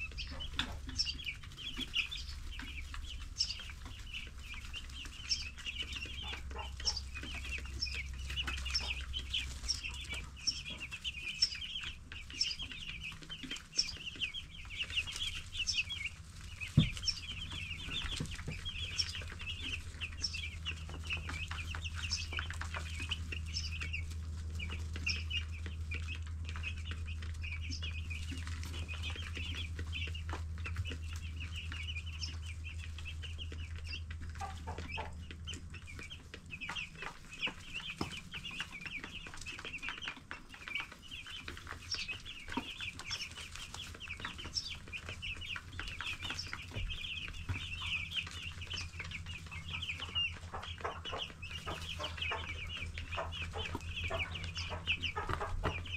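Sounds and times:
chicks peeping: 0.0 - 55.9
low steady hum: 0.0 - 55.9.

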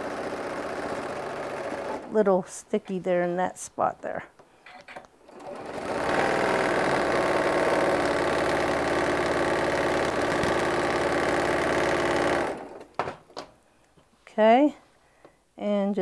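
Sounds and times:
sewing machine running fast: 0.0 - 2.1, 5.3 - 12.8.

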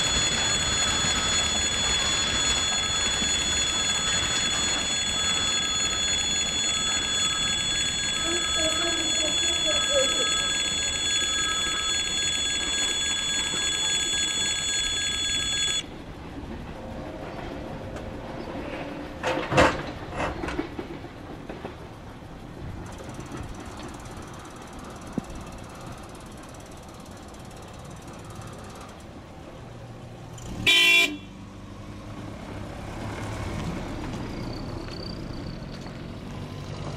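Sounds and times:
level crossing bell ringing: 0.0 - 15.8.

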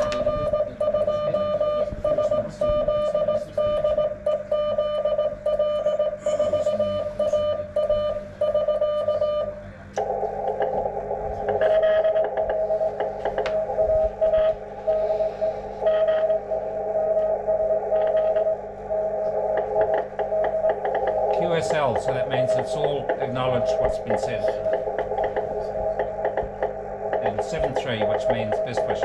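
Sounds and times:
morse code beeping tone: 0.0 - 9.6, 10.7 - 29.0
radio receiver hiss: 9.9 - 29.0.

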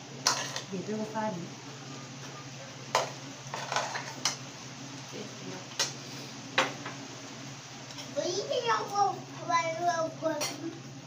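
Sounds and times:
cutlery clinking against plates: 0.2 - 0.7, 2.9 - 4.4.

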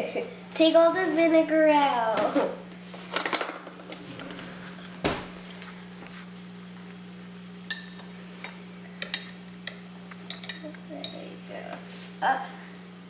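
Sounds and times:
low hum: 3.7 - 9.8
metal utensil clinking on glass: 9.0 - 11.2.

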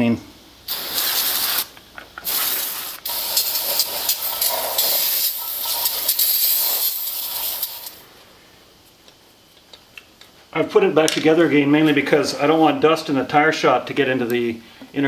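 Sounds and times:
aerosol spray hissing: 0.7 - 8.0.

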